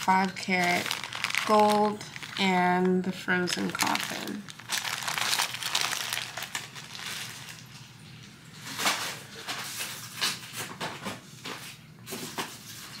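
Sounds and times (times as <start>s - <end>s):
plastic packaging crinkling: 0.0s - 10.6s.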